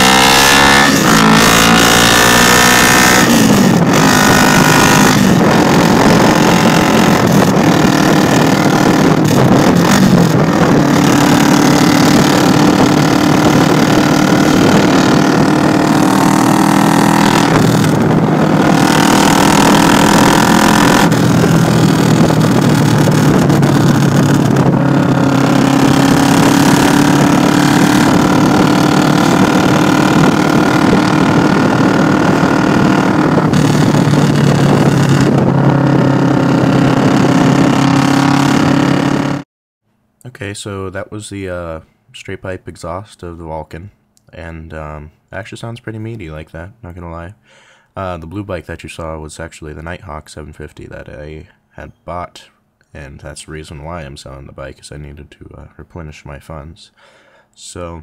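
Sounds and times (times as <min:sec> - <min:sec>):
motorcycle engine revving: 0:00.0 - 0:39.5.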